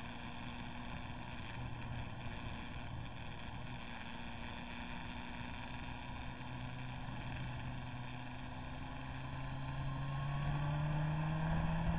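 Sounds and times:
motorcycle engine revving: 0:08.9 - 0:11.9.

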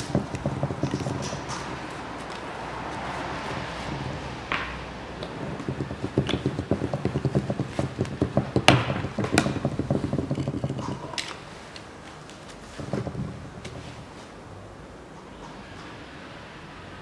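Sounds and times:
plastic jug knocks and rustles: 0:00.0 - 0:02.4, 0:04.6 - 0:11.3, 0:12.7 - 0:14.1.

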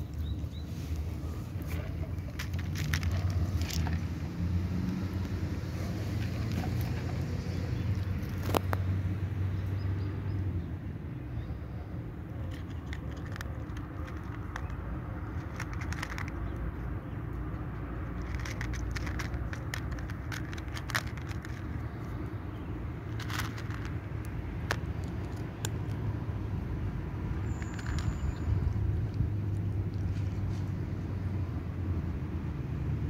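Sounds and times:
cat crunching dry kibble: 0:00.0 - 0:08.8, 0:12.3 - 0:26.8, 0:27.4 - 0:30.6.

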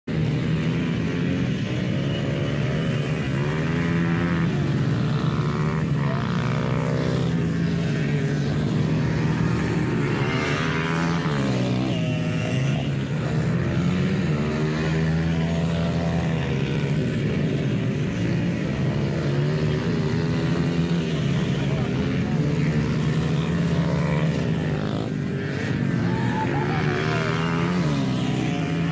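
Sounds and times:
pit bike engines racing: 0:00.1 - 0:28.9.

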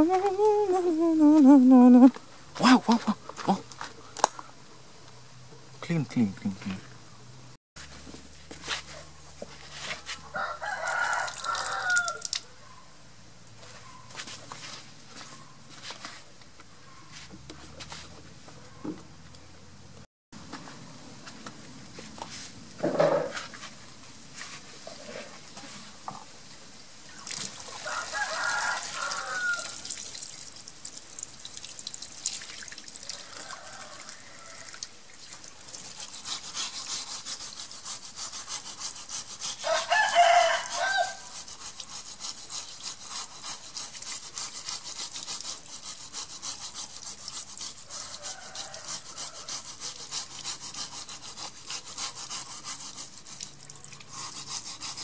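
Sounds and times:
scrubber scratching on wet shell: 0:08.6 - 0:12.4, 0:27.3 - 0:30.3, 0:35.4 - 0:55.0
rooster crowing: 0:10.3 - 0:12.3, 0:27.7 - 0:29.8, 0:33.0 - 0:34.8, 0:39.6 - 0:41.3, 0:47.9 - 0:49.6
running water: 0:27.1 - 0:36.1, 0:53.0 - 0:54.4.

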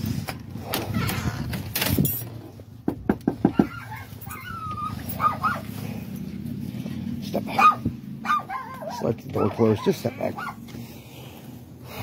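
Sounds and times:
knuckles knocking on door: 0:02.8 - 0:03.7
dog yelping: 0:03.4 - 0:05.8, 0:07.6 - 0:10.6.

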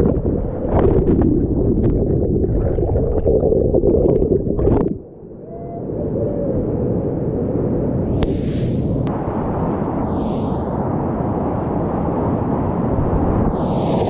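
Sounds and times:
muffled water churning over camera: 0:00.0 - 0:05.2.

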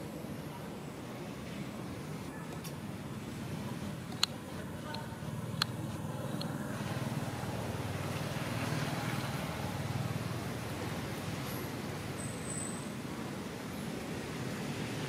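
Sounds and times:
sharp clicks: 0:04.0 - 0:06.6.

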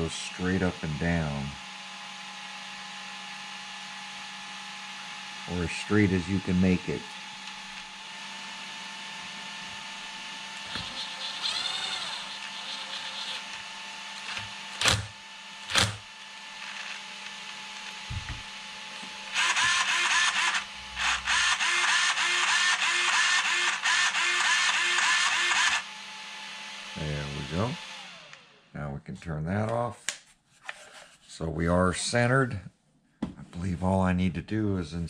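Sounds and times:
small electric motor whining: 0:00.0 - 0:28.6
rattling mechanical whirring: 0:10.5 - 0:17.0, 0:19.1 - 0:25.8.

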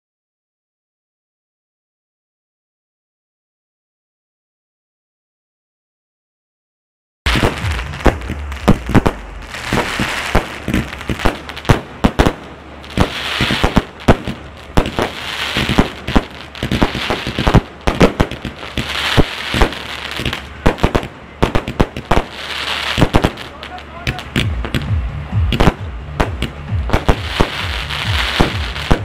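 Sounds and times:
fireworks bangs and crackling: 0:07.3 - 0:29.0
fireworks rushing hiss: 0:07.3 - 0:29.0.

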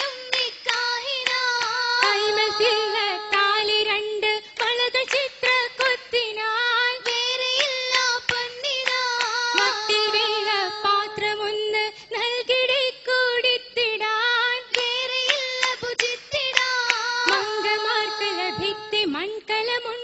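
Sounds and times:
hand claps: 0:00.0 - 0:03.6, 0:04.6 - 0:06.2, 0:07.0 - 0:10.6, 0:14.7 - 0:18.8
girls singing: 0:00.0 - 0:20.0.

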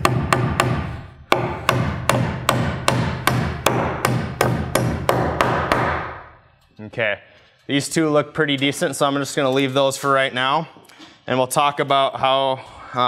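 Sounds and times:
hammer driving nails into wood: 0:00.0 - 0:06.2.

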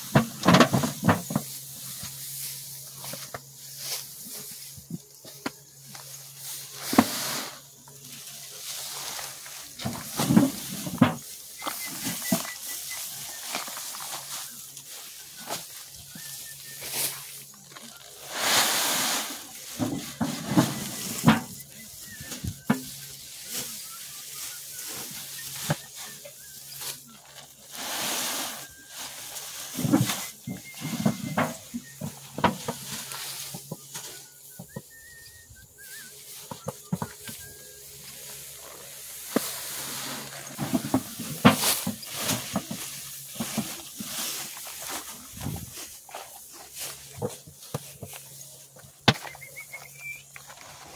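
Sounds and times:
plastic sack rustling: 0:00.0 - 0:50.9
tin can digging into grain: 0:06.0 - 0:17.2, 0:18.1 - 0:33.7
rice grain pouring into sack: 0:17.9 - 0:21.7, 0:27.7 - 0:30.8
grain pouring: 0:17.9 - 0:26.0.

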